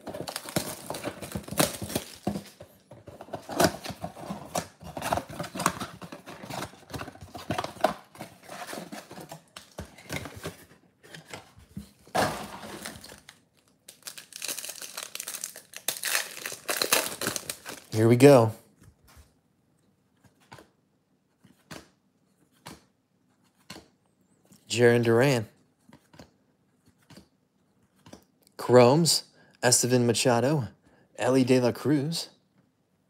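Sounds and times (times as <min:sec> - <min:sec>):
packaging tearing and crinkling: 0:00.0 - 0:02.6, 0:12.2 - 0:18.0.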